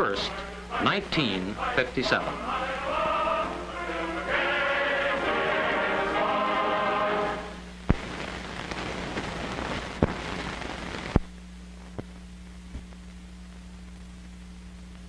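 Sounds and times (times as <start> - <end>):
choir singing: 0.0 - 7.7
film crackle and hiss: 0.0 - 15.0
steady low hum: 0.0 - 15.0
sharp pops: 7.8 - 12.2.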